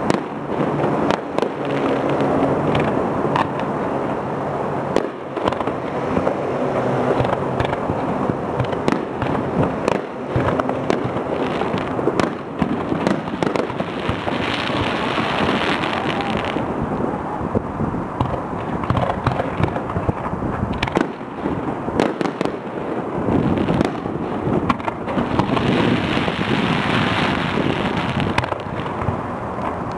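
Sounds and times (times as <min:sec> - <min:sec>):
fireworks bangs and pops: 0:00.0 - 0:17.0, 0:18.2 - 0:29.9
fireworks crackle: 0:00.0 - 0:29.9.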